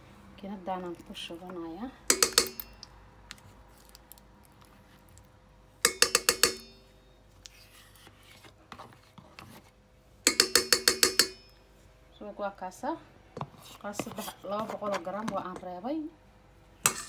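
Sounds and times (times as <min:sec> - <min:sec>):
metal utensil clinking on bowl: 0:02.1 - 0:02.9
faint handling noises: 0:07.3 - 0:09.8.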